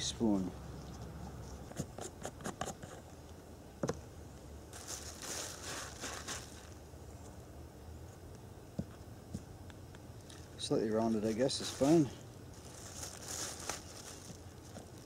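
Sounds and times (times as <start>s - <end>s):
plastic bag crinkling: 4.7s - 6.8s, 11.3s - 15.0s.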